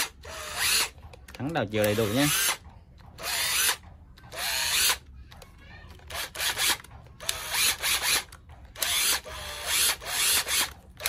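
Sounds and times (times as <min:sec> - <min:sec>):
cordless impact driver motor bursts: 0:00.0 - 0:00.9, 0:01.9 - 0:02.6, 0:03.2 - 0:03.8, 0:04.4 - 0:05.0, 0:06.1 - 0:10.7.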